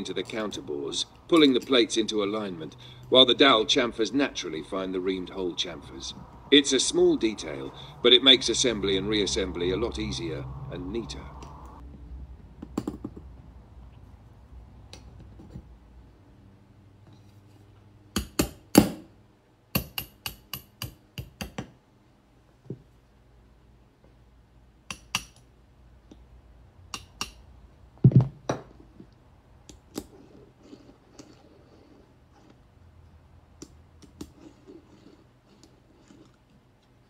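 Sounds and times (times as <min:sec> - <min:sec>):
hammer tapping on metal punch: 0:19.7 - 0:21.7, 0:26.9 - 0:27.4.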